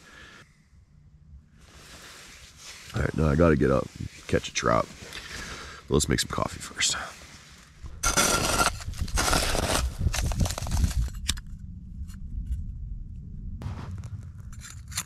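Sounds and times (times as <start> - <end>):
low steady rumble: 0.0 - 15.0
metal camp stove scraping: 8.0 - 11.2.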